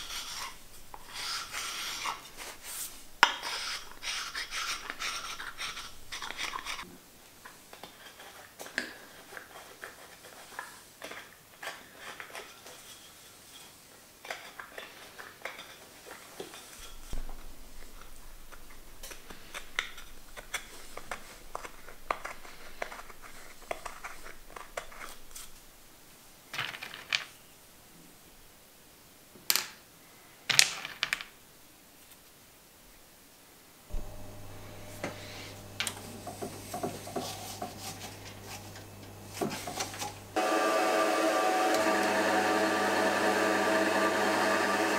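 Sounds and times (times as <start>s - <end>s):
knife scraping wood: 0.0s - 6.9s, 18.0s - 25.6s, 34.8s - 40.3s.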